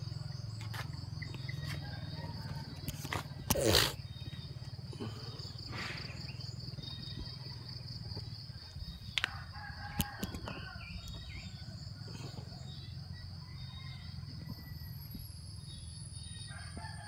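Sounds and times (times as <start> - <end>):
bird chirps: 0.0 - 9.2
rooster crowing: 1.7 - 3.2, 9.2 - 14.7, 16.5 - 17.0.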